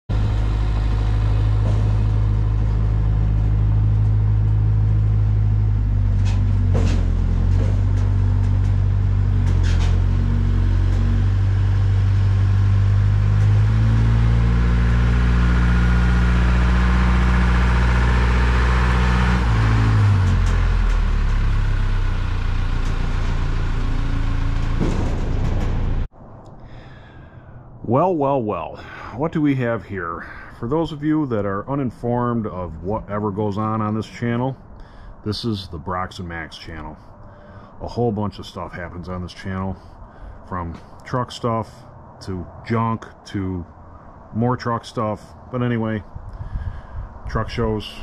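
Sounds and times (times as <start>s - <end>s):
diesel generator engine running: 0.1s - 26.1s.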